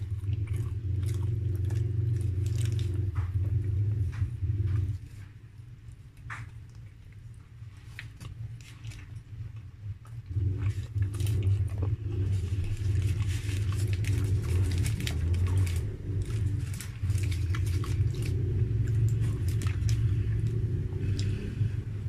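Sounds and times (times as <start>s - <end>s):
loud low rumble: 0.0s - 6.4s, 9.3s - 22.0s
close-up chewing: 0.0s - 22.0s.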